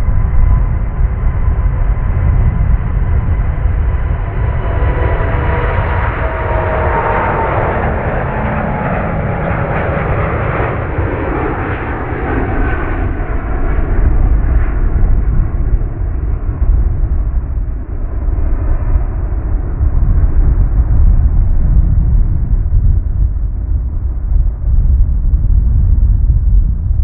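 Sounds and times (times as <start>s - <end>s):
whining fan tone: 0.0s - 26.9s
jet roar at takeoff: 0.0s - 27.0s.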